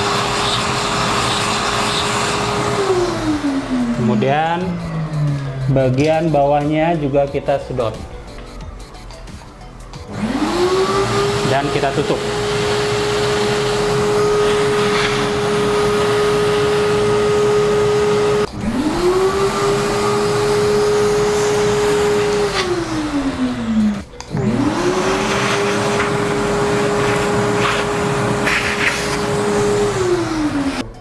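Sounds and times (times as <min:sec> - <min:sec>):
coffee grounds sucked through hose: 0:00.0 - 0:03.0, 0:24.7 - 0:30.2
vacuum cleaner whine: 0:00.0 - 0:06.6, 0:10.1 - 0:30.9.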